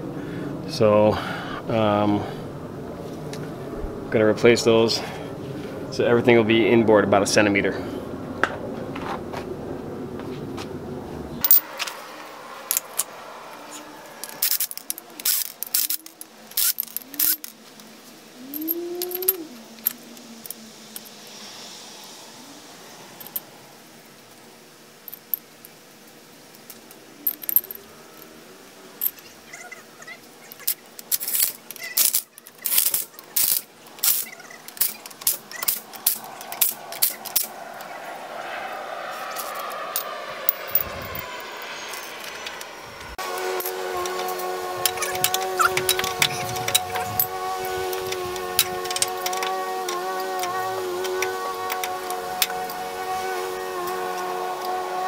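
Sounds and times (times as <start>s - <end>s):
metal tools clinking: 11.4s - 12.0s, 12.7s - 13.1s, 14.2s - 17.6s, 18.5s - 21.1s, 26.7s - 28.3s, 30.5s - 37.5s, 39.3s - 42.6s, 43.6s - 52.8s.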